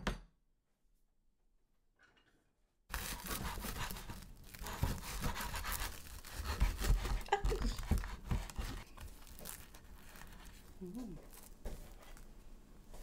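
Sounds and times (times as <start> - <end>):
bread knife sawing crusty bread: 2.9 - 8.8.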